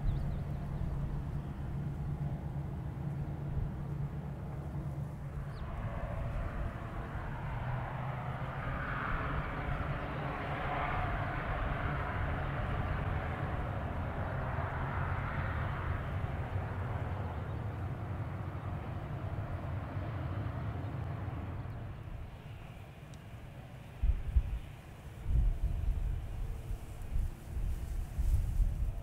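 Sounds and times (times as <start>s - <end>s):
aircraft engines humming: 0.0s - 29.0s
broad rushing noise: 3.7s - 29.0s.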